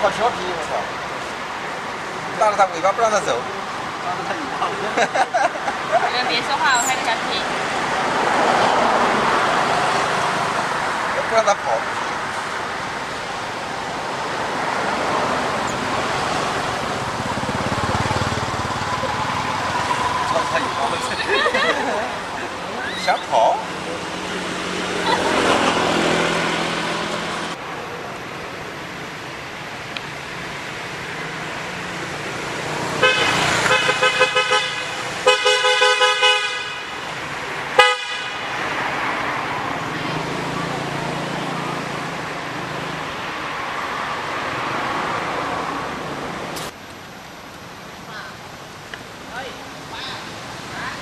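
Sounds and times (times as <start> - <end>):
outdoor background hiss: 0.0 - 51.0.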